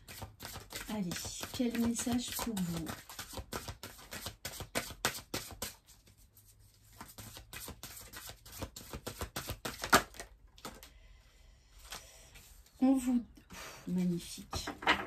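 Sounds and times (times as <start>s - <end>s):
cards being shuffled: 0.0s - 10.9s.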